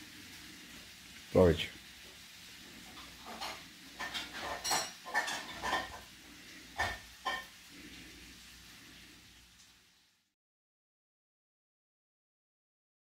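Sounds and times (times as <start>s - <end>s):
cutlery clinking on ceramic plate: 3.0s - 6.0s, 6.8s - 7.5s.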